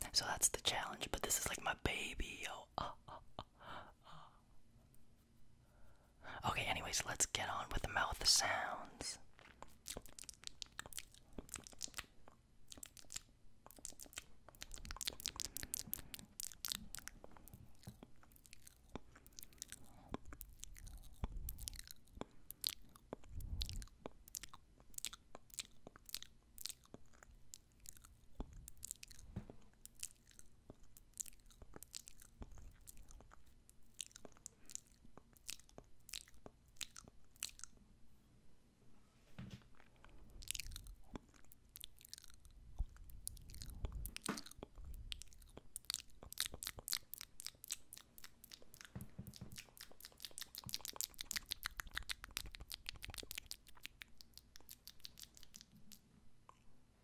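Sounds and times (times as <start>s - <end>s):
soft mouth clicks: 9.4s - 37.8s, 39.8s - 56.7s.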